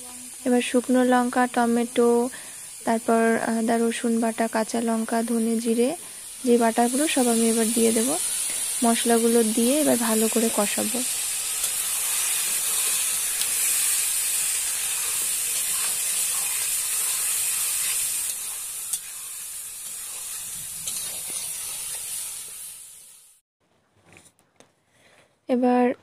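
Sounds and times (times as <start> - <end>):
food sizzling in hot oil: 0.0 - 23.4
metal spatula stirring: 14.7 - 22.2.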